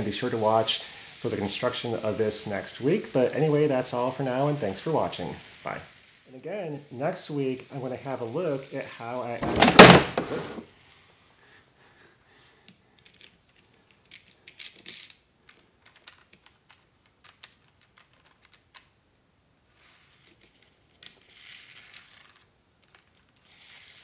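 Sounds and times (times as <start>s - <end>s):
plastic model train cars clicking: 7.1s - 10.6s, 12.7s - 19.0s, 19.7s - 24.0s.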